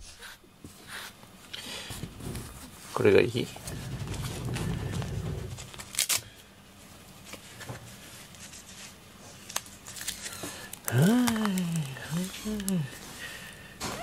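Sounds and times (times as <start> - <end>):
soft rustling: 2.1 - 6.0.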